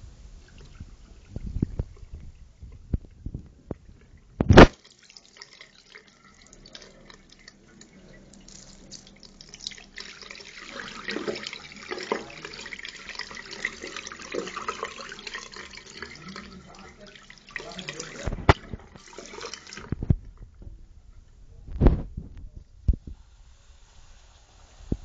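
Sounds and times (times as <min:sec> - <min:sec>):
water trickling into a sink: 0:00.0 - 0:21.3.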